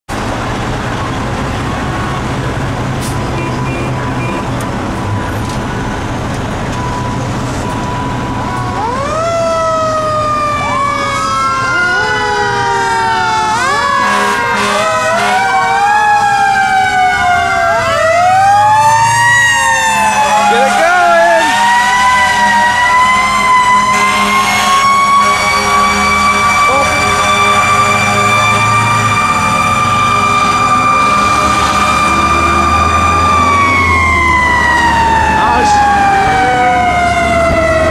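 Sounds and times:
fire engine sirens: 0.1 - 37.9
fire engines rumbling: 0.1 - 37.9.

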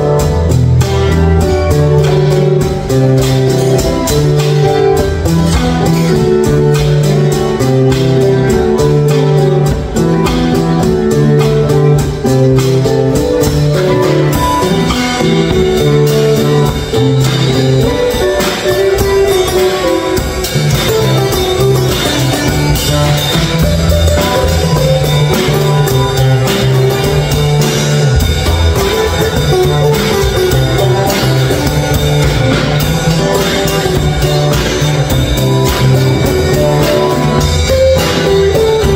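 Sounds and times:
acoustic guitars playing: 0.0 - 38.9
drum kit beat: 0.0 - 38.9.

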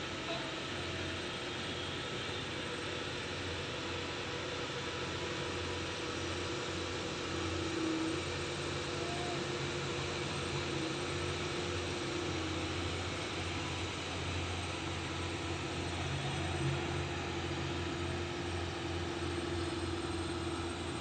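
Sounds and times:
engine drone: 0.0 - 21.0
constant high tone: 5.1 - 21.0.

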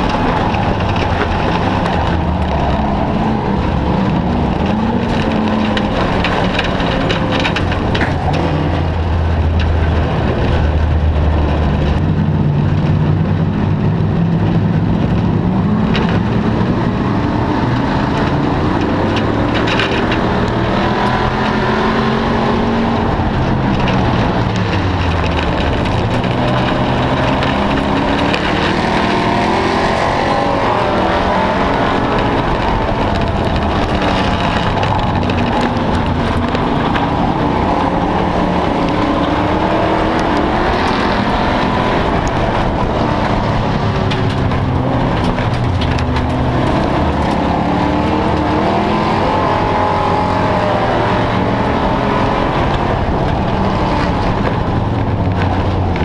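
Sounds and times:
race car engine running hard: 0.0 - 56.0
wind and road noise: 0.0 - 56.0.

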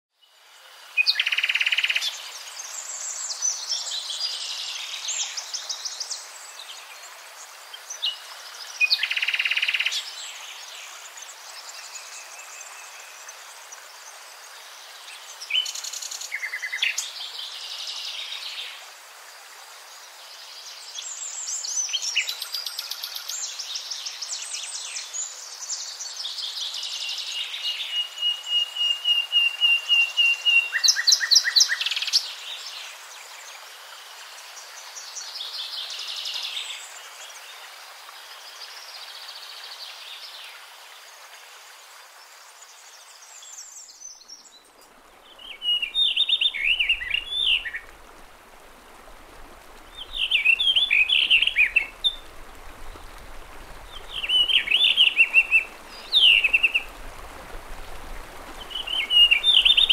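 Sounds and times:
songbirds singing: 42.2 - 59.9.

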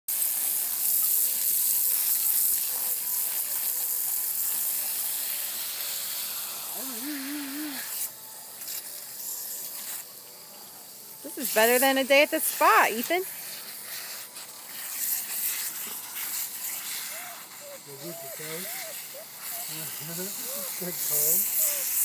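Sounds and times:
water spraying onto grass: 0.1 - 10.2, 10.8 - 22.0
hose nozzle hissing: 4.3 - 10.1, 11.2 - 22.0.

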